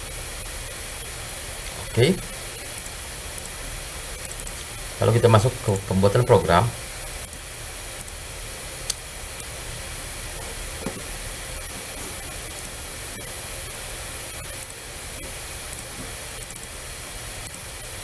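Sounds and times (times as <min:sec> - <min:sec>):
steady background hiss: 0:00.0 - 0:18.0
computer mouse clicks: 0:02.8 - 0:03.6, 0:04.2 - 0:04.7, 0:14.6 - 0:14.8, 0:15.7 - 0:16.7, 0:17.4 - 0:17.6.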